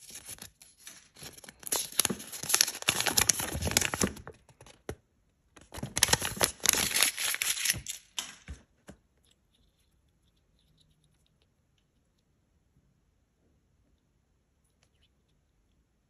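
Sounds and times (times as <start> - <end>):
paper leaflet crinkling: 0.0 - 4.8, 5.6 - 8.6.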